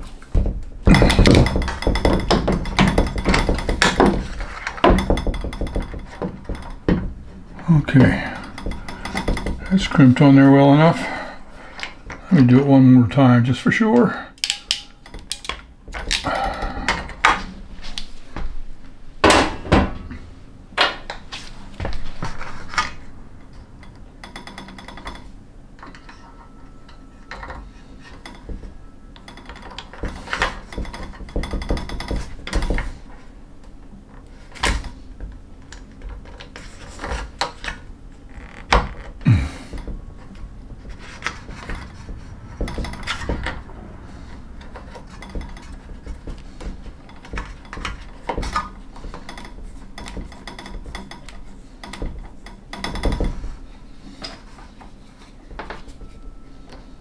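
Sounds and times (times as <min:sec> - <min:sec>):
cable knocking on metal frame: 0:00.4 - 0:10.5, 0:28.3 - 0:33.0, 0:39.3 - 0:53.4.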